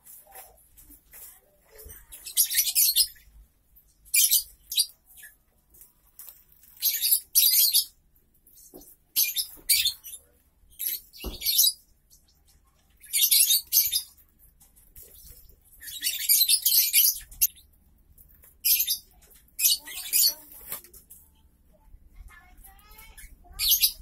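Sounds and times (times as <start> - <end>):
lovebirds chattering: 0.2 - 24.0.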